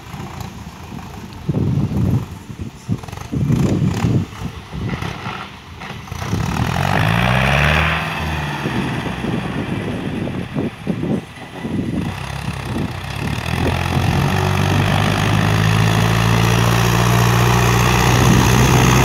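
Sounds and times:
heavy low rumbling bursts: 0.0s - 19.0s
tractor engine running: 0.0s - 19.0s.

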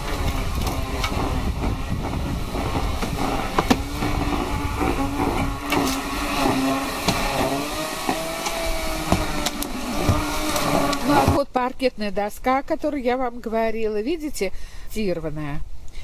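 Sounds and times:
engine-like hum: 0.0s - 11.4s.

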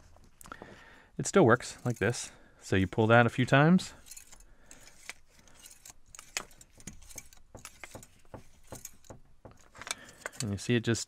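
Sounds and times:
pliers metallic clicks and rattles: 4.0s - 10.6s.

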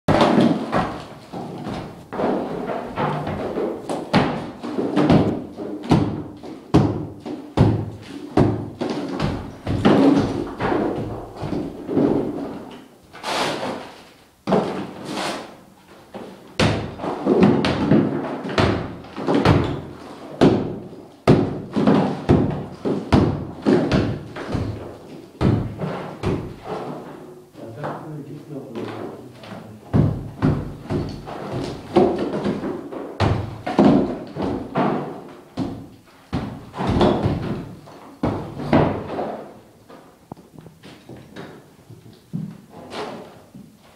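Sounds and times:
hammer striking plaster wall: 0.1s - 12.6s, 13.2s - 27.2s, 29.9s - 39.6s.

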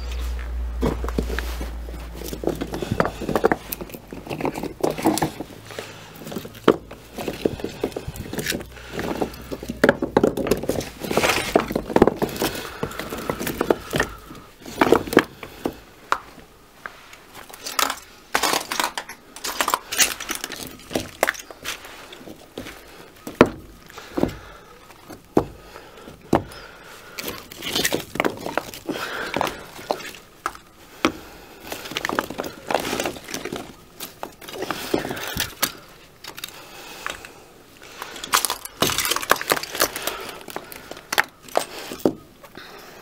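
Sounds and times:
low rumble: 0.0s - 2.8s
clay blocks knocking and clinking: 0.8s - 16.3s, 17.5s - 37.3s, 37.9s - 42.6s.

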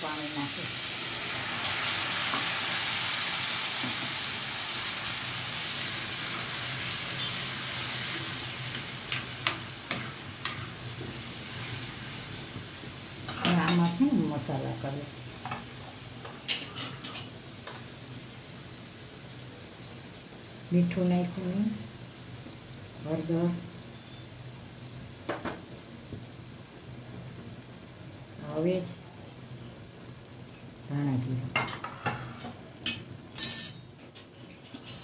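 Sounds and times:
vegetables sizzling in hot oil: 0.0s - 35.0s.

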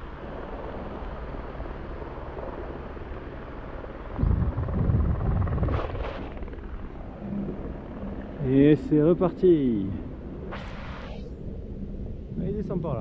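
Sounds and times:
wind buffeting microphone: 4.0s - 8.0s.

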